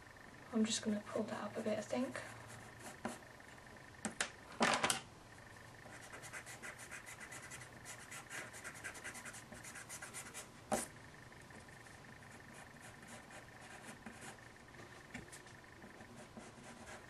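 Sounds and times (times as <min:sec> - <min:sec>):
pencil sketching on paper: 0:05.9 - 0:10.9, 0:12.3 - 0:14.4, 0:15.9 - 0:17.0.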